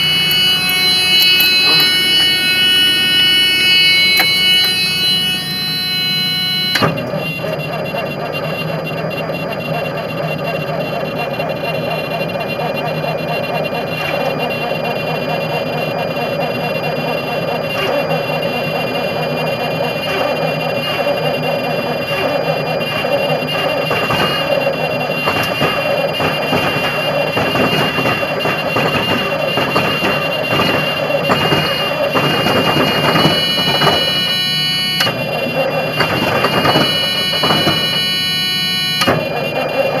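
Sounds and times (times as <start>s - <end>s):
truck engine idling: 0.0s - 40.0s
warning buzzer: 0.0s - 40.0s.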